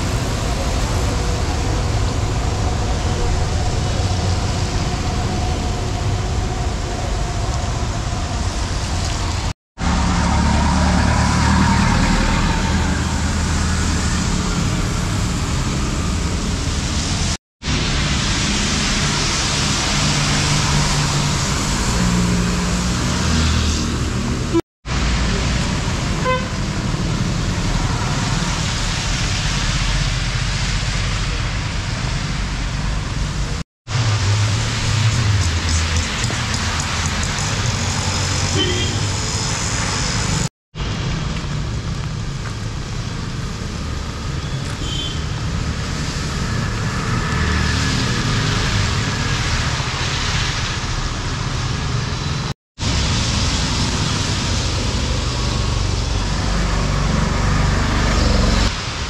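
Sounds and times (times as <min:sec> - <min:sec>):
traffic on wet road: 0:00.0 - 0:59.0
car horn toot: 0:26.2 - 0:26.6, 0:38.6 - 0:39.1.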